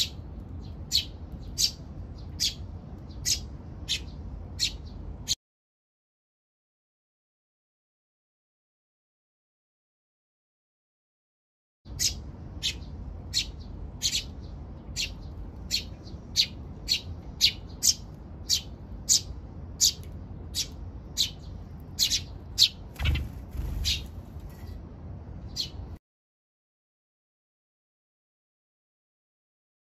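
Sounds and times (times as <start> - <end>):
sparrow chicks chirping: 0.0 - 5.4, 11.9 - 24.8, 25.4 - 26.0.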